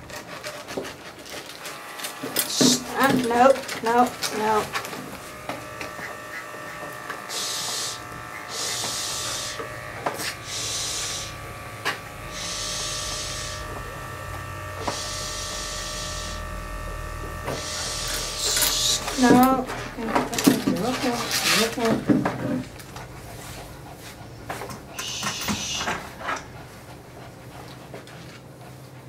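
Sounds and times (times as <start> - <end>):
electric clippers humming: 1.2 - 23.0, 24.6 - 26.6
short hisses: 25.0 - 26.0.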